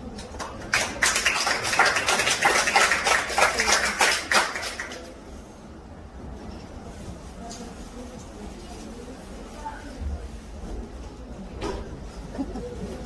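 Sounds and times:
people clapping: 0:00.0 - 0:05.2.

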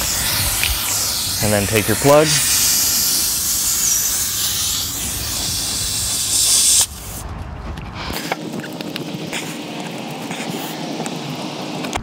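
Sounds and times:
air hissing out of tire: 0:00.0 - 0:07.2, 0:10.2 - 0:11.8.

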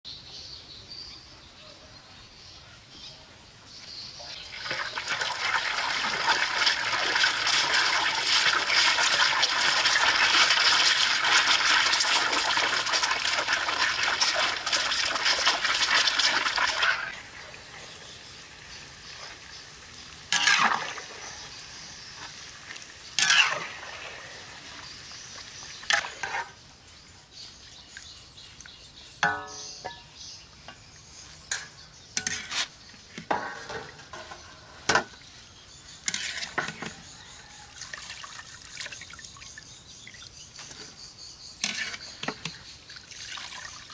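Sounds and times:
eggs sizzling in hot oil: 0:04.5 - 0:26.7, 0:31.2 - 0:40.4, 0:41.5 - 0:43.9.

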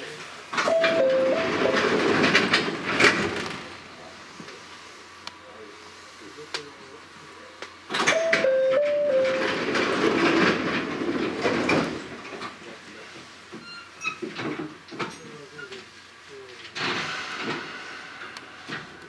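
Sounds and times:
sliding train doors: 0:00.0 - 0:04.6, 0:07.9 - 0:19.0
descending train chime: 0:00.6 - 0:02.0, 0:08.1 - 0:09.6.

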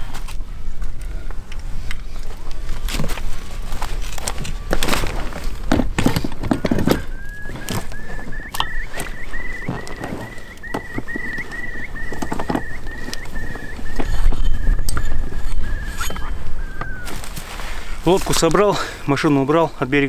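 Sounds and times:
short high chirp: 0:07.0 - 0:17.2.

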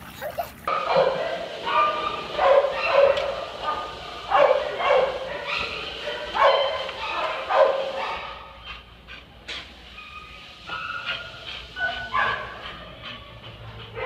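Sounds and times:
dog whining and yelping: 0:00.0 - 0:00.7.

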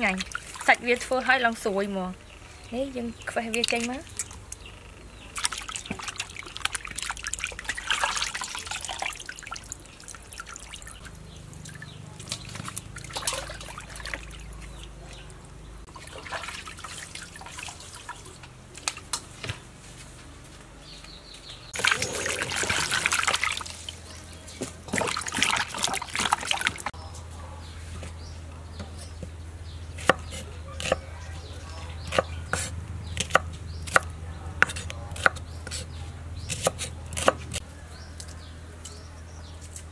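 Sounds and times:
water splashing in steel basin: 0:00.0 - 0:01.1, 0:05.3 - 0:19.2, 0:21.8 - 0:27.0.

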